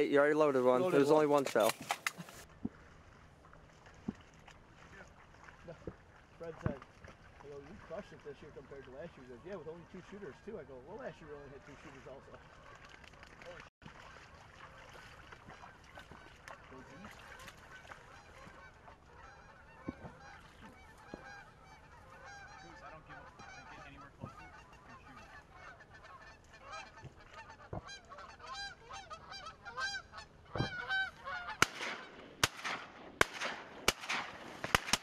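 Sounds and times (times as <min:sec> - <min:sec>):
geese honking: 0:15.5 - 0:32.2
sharp cracks: 0:31.5 - 0:35.0.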